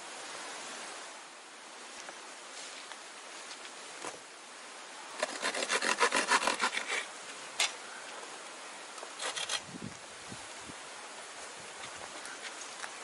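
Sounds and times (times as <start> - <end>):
hand saw cutting wood: 5.2 - 7.1, 9.2 - 9.6.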